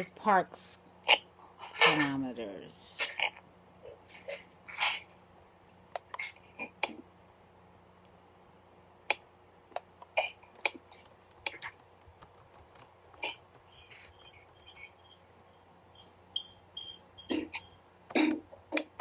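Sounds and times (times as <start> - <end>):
typing on computer keyboard: 10.5 - 15.2.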